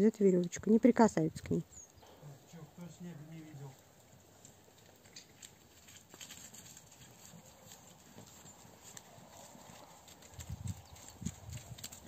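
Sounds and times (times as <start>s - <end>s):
hoof steps on snow: 3.5s - 12.0s.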